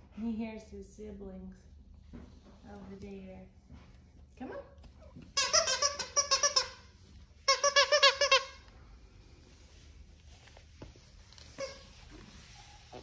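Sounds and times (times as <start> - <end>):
squeaky dog toy squeaking: 5.1 - 8.7, 11.5 - 12.1.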